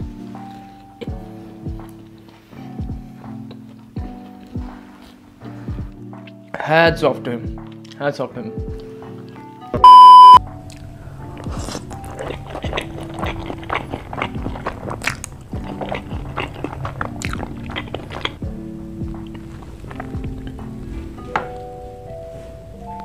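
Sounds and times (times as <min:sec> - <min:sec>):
background music: 0:00.0 - 0:23.0
loud beep: 0:09.8 - 0:10.4
crunching and chewing food: 0:10.5 - 0:21.3.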